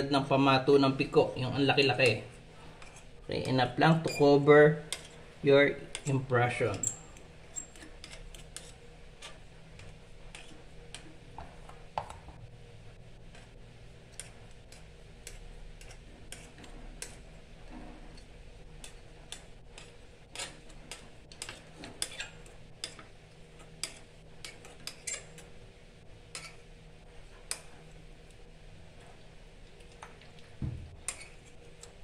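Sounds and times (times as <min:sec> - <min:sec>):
metal spatula tapping and scraping: 0:01.6 - 0:04.2, 0:04.9 - 0:05.2, 0:05.8 - 0:12.4, 0:13.2 - 0:25.6, 0:26.3 - 0:26.7, 0:27.3 - 0:27.8, 0:31.0 - 0:32.0.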